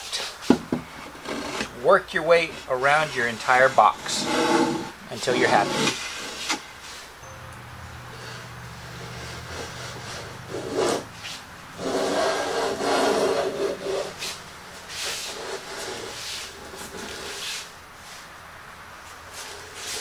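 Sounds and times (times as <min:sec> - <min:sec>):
hand plane shaving wood: 0:01.1 - 0:06.6, 0:08.2 - 0:17.7.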